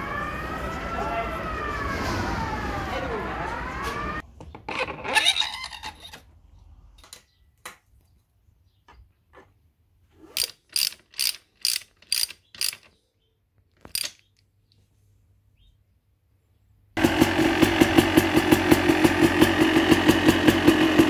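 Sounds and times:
ratchet wrench clicking: 10.3s - 12.9s, 13.8s - 14.3s.

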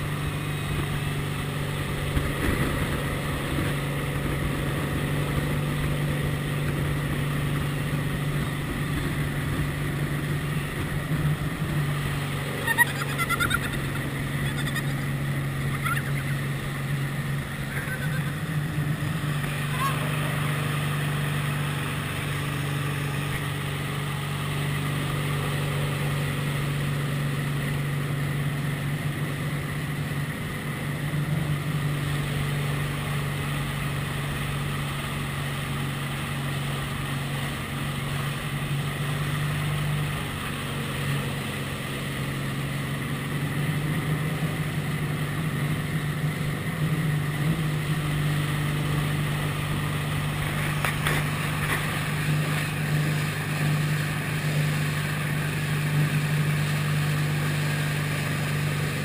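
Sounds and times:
rush of boat wake: 0.0s - 59.0s
speedboat engine running: 0.0s - 59.0s.

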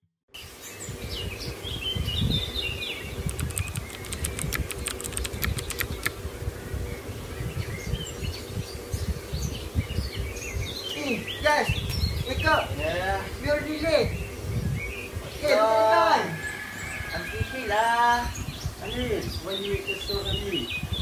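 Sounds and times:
birds chirping: 0.4s - 21.0s
sharp clicks: 3.2s - 6.2s.

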